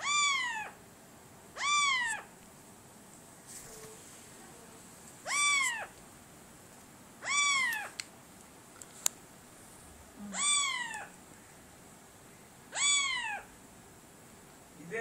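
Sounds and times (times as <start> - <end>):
parakeet imitating cat meow: 0.0 - 0.8, 1.6 - 2.3, 5.2 - 6.0, 7.2 - 8.0, 10.3 - 11.1, 12.7 - 13.5.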